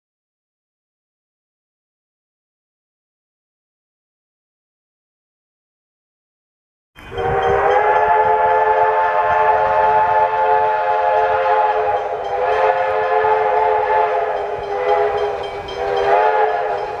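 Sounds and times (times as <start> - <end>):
train whistle chord: 7.0 - 17.0.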